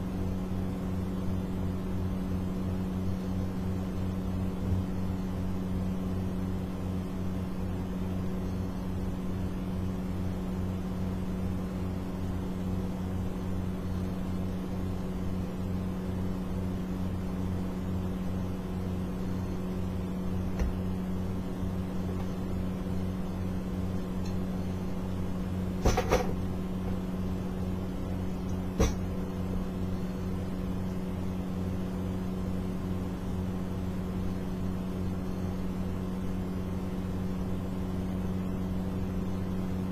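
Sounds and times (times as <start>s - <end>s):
electrical motor hum: 0.0s - 39.9s.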